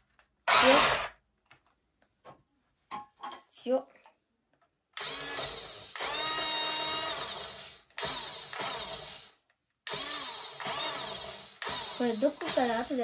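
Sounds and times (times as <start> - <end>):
small electric motor whirring: 0.5 - 1.1, 5.0 - 13.0.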